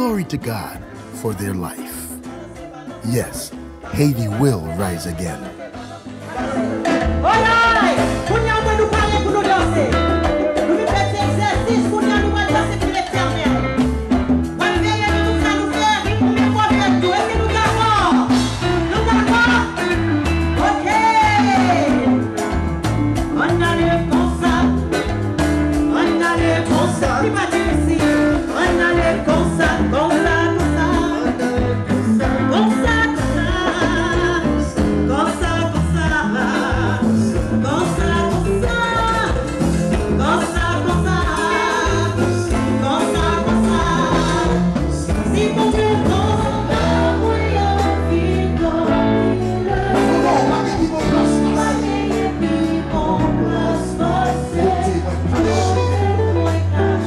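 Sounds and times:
band with beat and bass: 0.0 - 57.0
people singing: 40.4 - 57.0.

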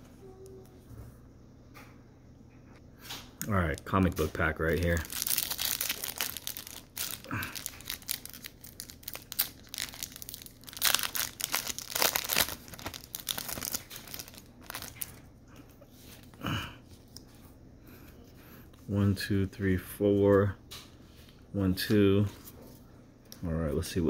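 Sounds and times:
foil wrapper crinkling and tearing: 3.6 - 15.2.

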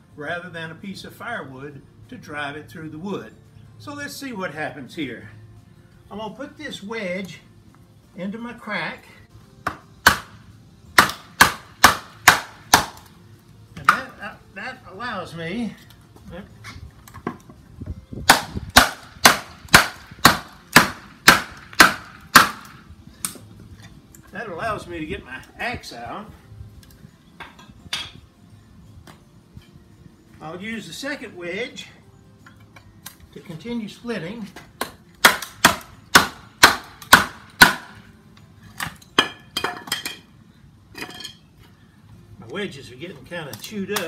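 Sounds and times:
wood striking plastic wedges: 11.0 - 13.1, 18.3 - 23.5, 34.6 - 38.0.

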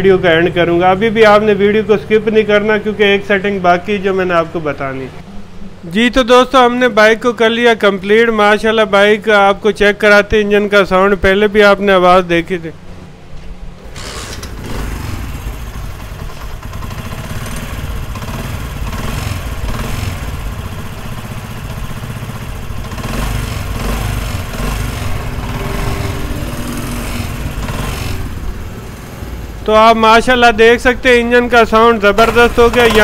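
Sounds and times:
motorcycle engine running: 13.8 - 33.0.

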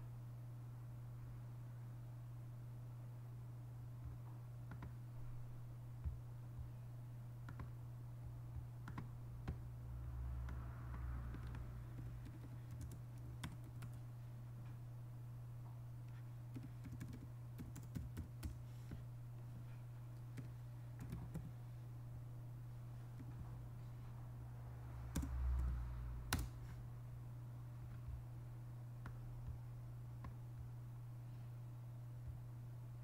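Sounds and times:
steady low hum: 0.0 - 33.0
keyboard keystrokes: 8.8 - 9.6, 10.5 - 14.0, 16.5 - 18.6, 20.3 - 21.5, 26.3 - 26.6.

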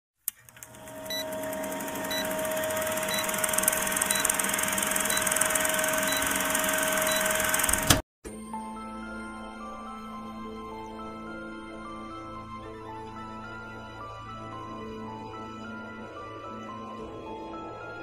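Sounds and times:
click: 0.2 - 1.2
projector whir and hum: 0.3 - 8.0
short high beeps: 5.0 - 7.6
soft music: 8.3 - 18.0.

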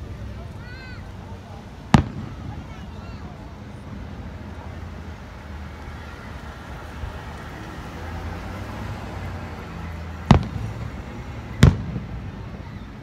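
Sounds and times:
firework bang: 1.9 - 4.6, 10.2 - 13.0
faint firework pop: 10.3 - 10.6.

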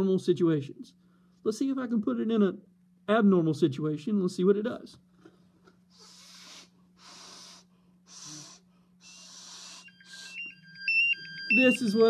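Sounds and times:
person breathing out: 5.9 - 10.4
gas detector alarm beeping: 9.0 - 12.0.

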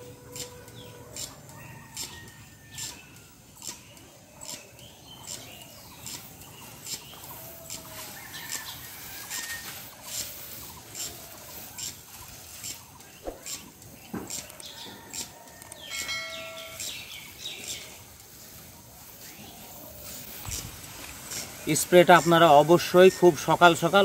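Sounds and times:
sprayer hissing: 2.8 - 15.2, 16.4 - 24.0.

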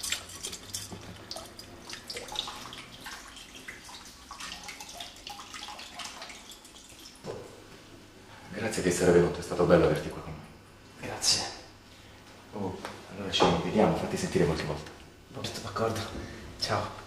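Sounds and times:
water dripping: 0.0 - 7.3
water running from a tap: 0.0 - 7.3.

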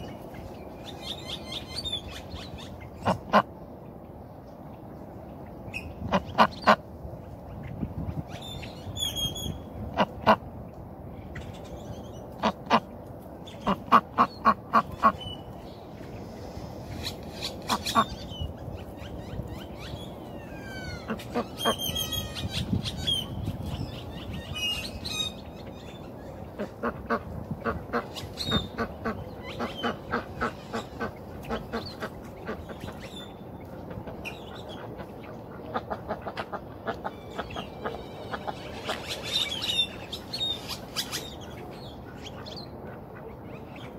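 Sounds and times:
ducks quacking: 3.0 - 3.5, 13.6 - 15.2, 26.5 - 33.0, 33.9 - 39.2.

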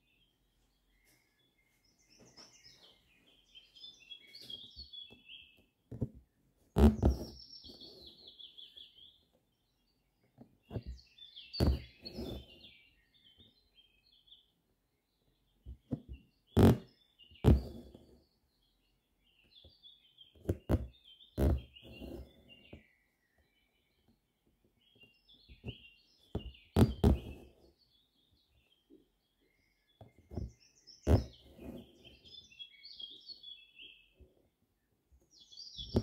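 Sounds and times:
songbirds chirping: 0.0 - 36.0
needle and thread through fabric: 5.9 - 8.8, 10.7 - 12.7, 15.7 - 18.2, 20.3 - 22.8, 25.5 - 27.8, 30.0 - 32.4, 35.8 - 36.0.

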